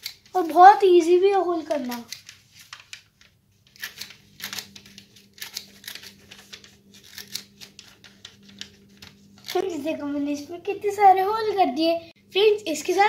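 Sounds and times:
paper rustling: 0:00.0 - 0:10.0.

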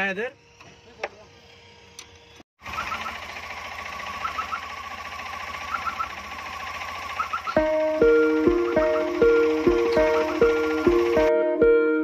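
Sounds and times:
car engine idling: 0:02.6 - 0:11.3
music: 0:07.6 - 0:12.0.

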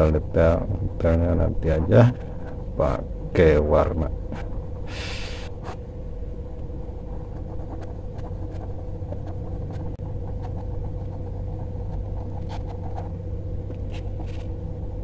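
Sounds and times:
low hum: 0:00.0 - 0:15.0
thin whine: 0:00.0 - 0:15.0
pencil scratching on paper: 0:07.2 - 0:13.2.

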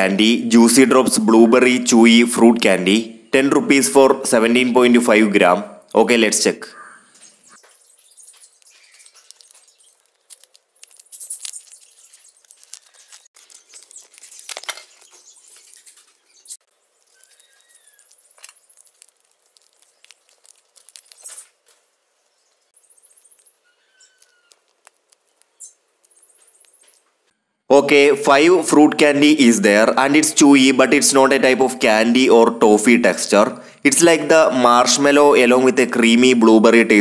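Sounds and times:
faint chirps: 0:06.7 - 0:21.5, 0:22.2 - 0:27.6
candy packet crackling: 0:07.9 - 0:26.9.

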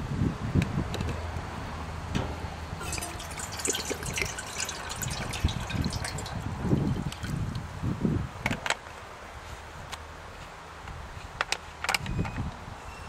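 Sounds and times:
bottle glugging: 0:02.8 - 0:07.5
water pouring into metal kettle: 0:02.8 - 0:07.6.

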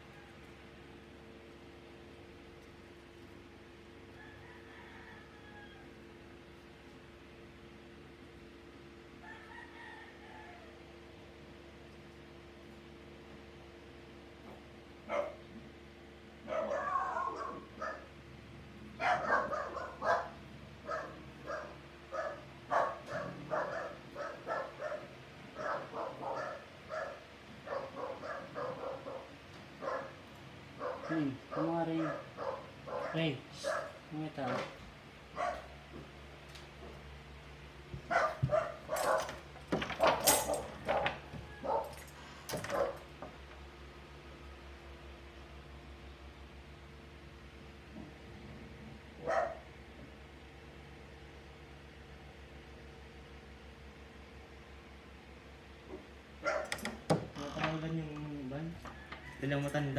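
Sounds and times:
dog barking: 0:15.0 - 0:15.4, 0:16.4 - 0:18.1, 0:19.0 - 0:30.2, 0:30.8 - 0:34.0, 0:35.3 - 0:35.8, 0:38.1 - 0:39.4, 0:40.0 - 0:42.0, 0:42.7 - 0:43.1, 0:49.2 - 0:49.7, 0:55.9 - 0:56.8.

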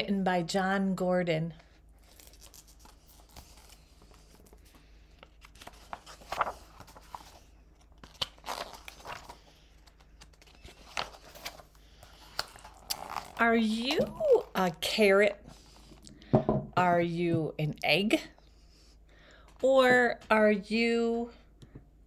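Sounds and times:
paper pages rustling: 0:02.0 - 0:14.5.

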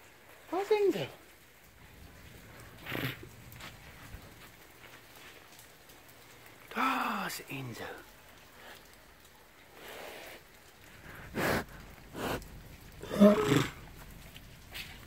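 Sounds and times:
animal breathy bursts: 0:09.7 - 0:13.8
animal pitched call: 0:13.0 - 0:13.8.

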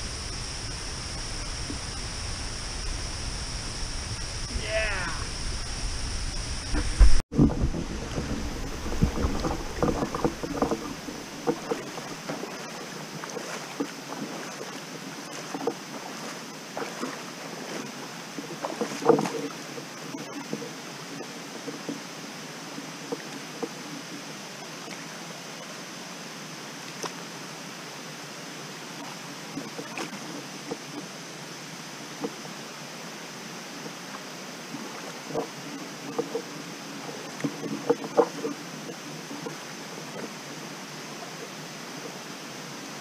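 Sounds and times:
water rushing over waterfall: 0:00.0 - 0:43.0
knocks and splashes: 0:06.7 - 0:20.7.

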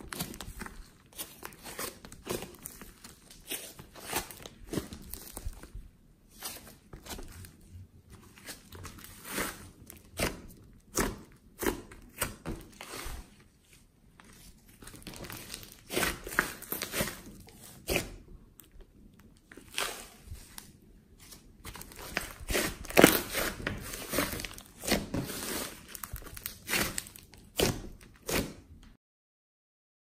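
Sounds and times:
slime crackling: 0:00.0 - 0:05.7, 0:14.3 - 0:20.8, 0:21.4 - 0:28.8
hands squishing thick slime: 0:00.0 - 0:28.9.

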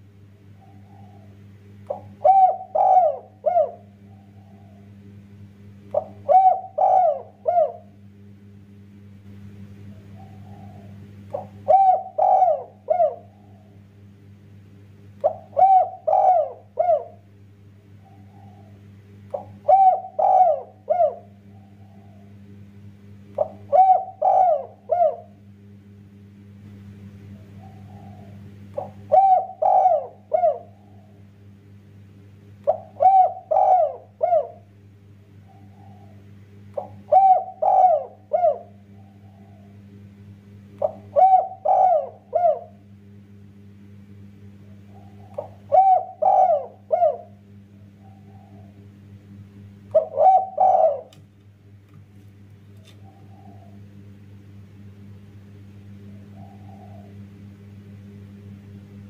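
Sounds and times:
dove cooing: 0:00.0 - 0:08.1, 0:09.8 - 0:13.8, 0:15.2 - 0:22.5, 0:23.3 - 0:25.5, 0:27.2 - 0:31.3, 0:32.6 - 0:43.0, 0:44.5 - 0:51.2, 0:52.9 - 0:54.2, 0:55.9 - 0:58.2.

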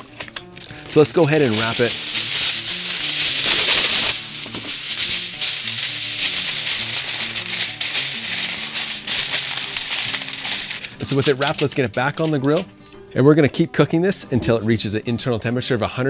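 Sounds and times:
foil crinkling and rustling: 0:00.0 - 0:12.7
foil torn off roll: 0:00.0 - 0:12.7
background music: 0:00.0 - 0:16.0.

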